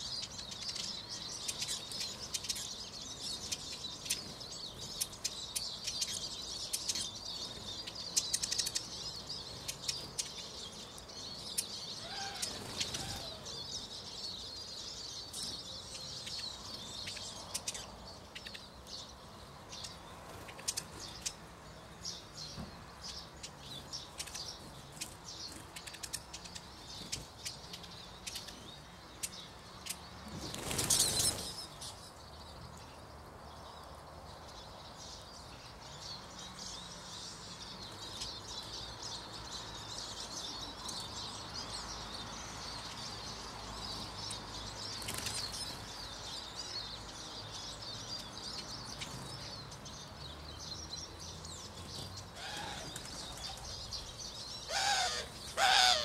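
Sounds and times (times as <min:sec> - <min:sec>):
high twittering chatter of finches: 0:00.0 - 0:56.0
flurry of wingbeats: 0:30.2 - 0:31.6.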